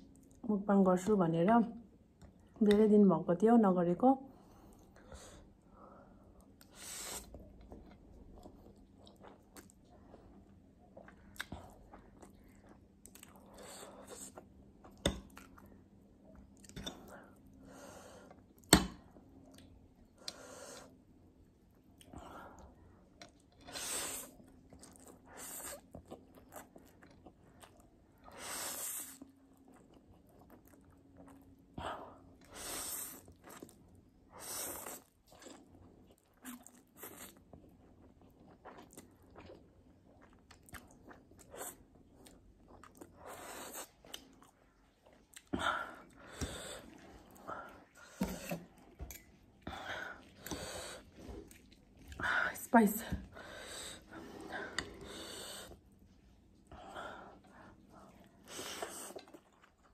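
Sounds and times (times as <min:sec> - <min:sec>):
person chewing: 0:06.5 - 0:17.5, 0:23.0 - 0:28.0, 0:29.1 - 0:31.7, 0:33.1 - 0:34.0, 0:34.8 - 0:52.2, 0:57.4 - 0:59.9.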